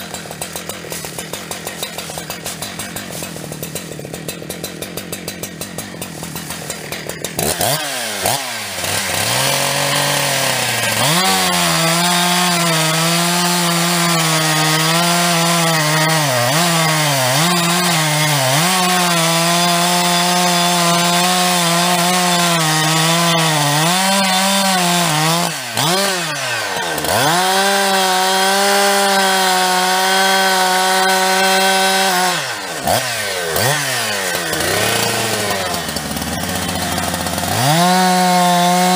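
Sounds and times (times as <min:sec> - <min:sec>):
chainsaw revving and cutting: 0:00.0 - 0:38.9.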